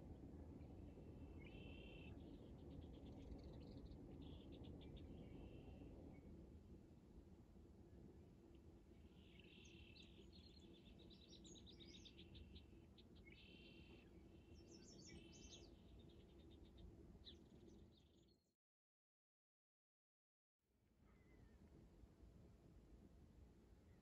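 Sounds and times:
songbirds chirping and trilling: 9.2 - 18.2.

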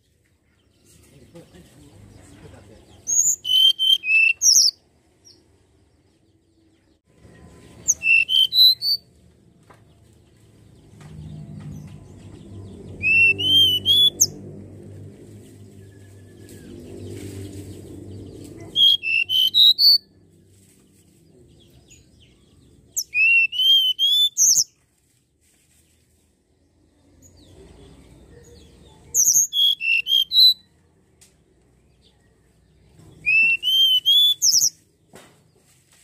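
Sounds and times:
bird singing whistled notes: 3.1 - 4.8, 7.8 - 9.1, 12.9 - 14.4, 18.6 - 20.1, 22.9 - 24.7, 29.1 - 30.7, 33.2 - 34.8.

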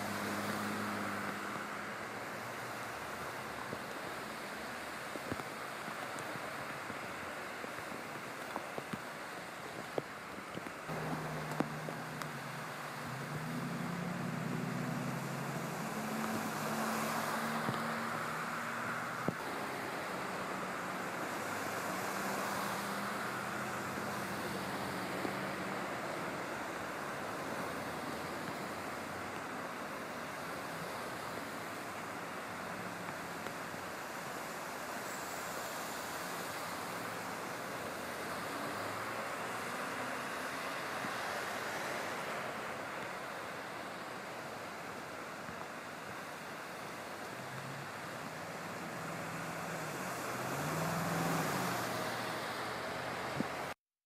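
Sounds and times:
tyres spraying floodwater: 0.0 - 53.8
low engine hum: 10.7 - 34.4, 35.0 - 53.8.

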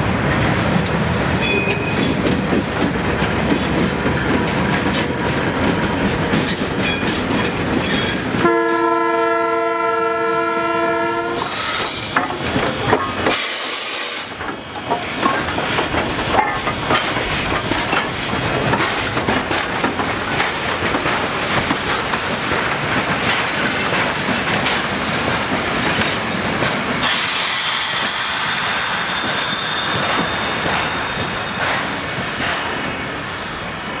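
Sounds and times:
diesel locomotive passing: 0.0 - 34.0
steam locomotive passing: 0.0 - 34.0
wheels clicking over rail joints: 1.4 - 8.8, 11.4 - 13.5, 14.2 - 27.2
train horn: 8.4 - 11.6.

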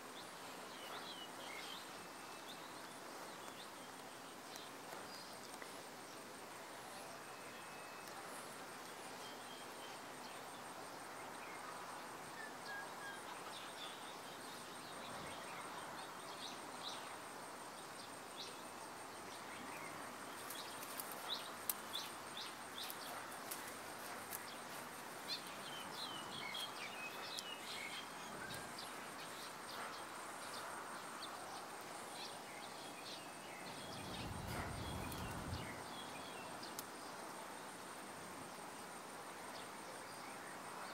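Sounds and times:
steady hiss: 0.0 - 40.9
small birds chirping: 32.3 - 36.9.

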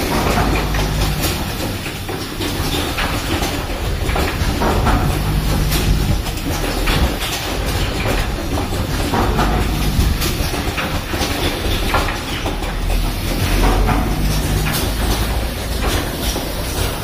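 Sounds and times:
machine humming: 0.0 - 17.0
mechanical clacks and hisses: 0.0 - 17.0.

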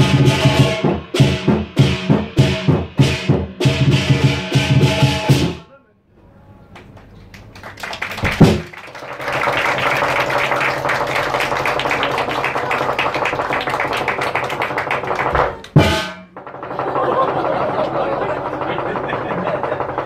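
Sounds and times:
loud drum strike: 0.0 - 5.6, 8.2 - 8.7, 15.4 - 16.9
fast drum roll: 8.0 - 20.0.

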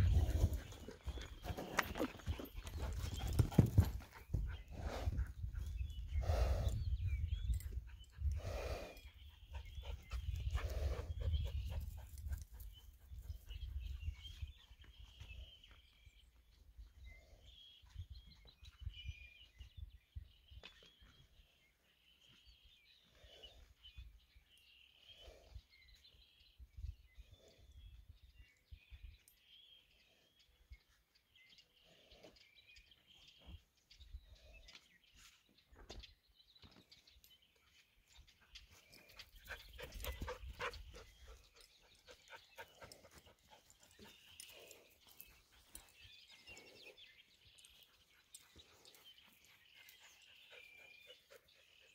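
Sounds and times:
wind rumbling on microphone: 0.0 - 1.3, 2.4 - 15.6.

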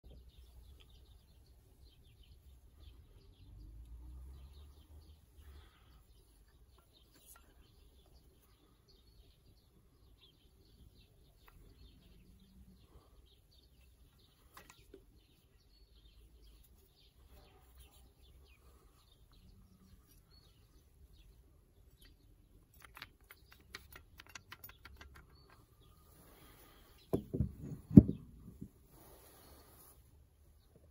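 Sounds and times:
hand drill clicks and taps: 22.8 - 25.6.

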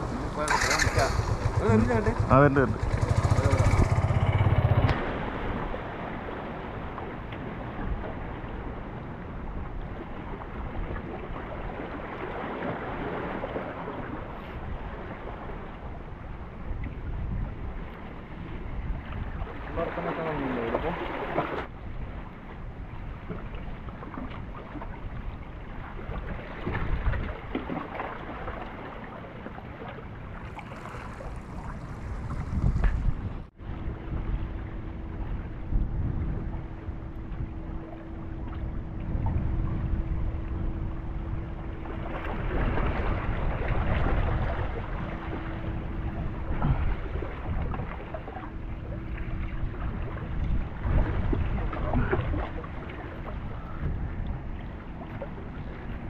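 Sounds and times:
wind buffeting microphone: 0.0 - 28.8, 29.6 - 56.0
waves lapping against rocks: 23.1 - 33.3, 41.9 - 53.6
faint steady hum: 30.2 - 56.0
waves splashing against rocks: 30.4 - 33.2.

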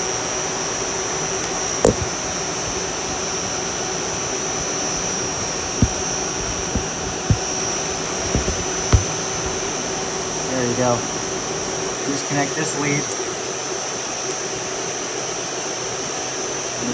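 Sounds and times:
small clicks and knocks: 1.8 - 2.1, 5.8 - 9.6.

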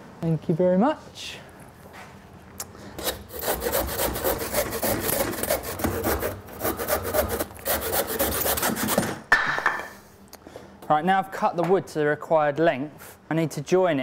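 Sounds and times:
handsaw cutting wood: 3.0 - 9.2.

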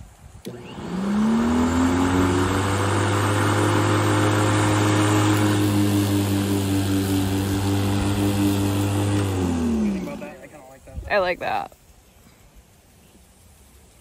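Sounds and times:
electric lawn mower running: 0.4 - 10.6.

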